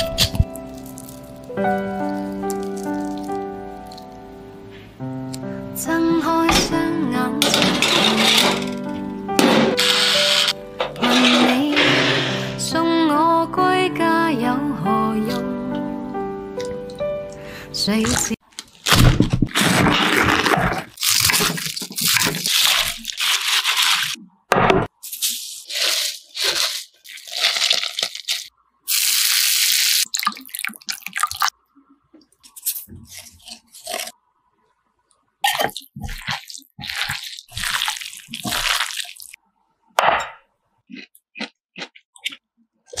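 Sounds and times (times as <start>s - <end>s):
cabbage leaves crunching: 0.0s - 4.0s, 9.7s - 11.4s, 18.1s - 24.2s, 25.0s - 30.0s, 32.6s - 34.1s, 35.5s - 39.4s
wet squishing of tossed cabbage: 0.0s - 4.0s, 18.6s - 24.2s, 25.0s - 31.6s, 32.4s - 34.2s, 35.4s - 39.4s
hot oil sizzling: 25.6s - 30.2s.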